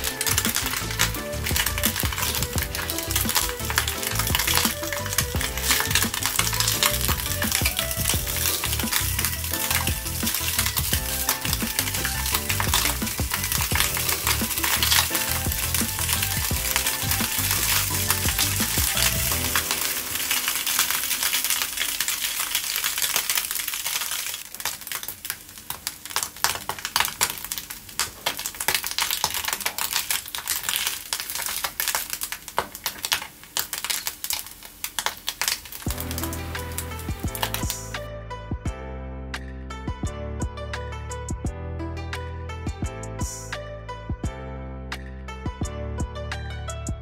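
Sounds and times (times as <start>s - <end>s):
background music: 0.0s - 22.1s, 35.9s - 47.0s
fish cakes sizzling in a pan: 0.0s - 37.8s.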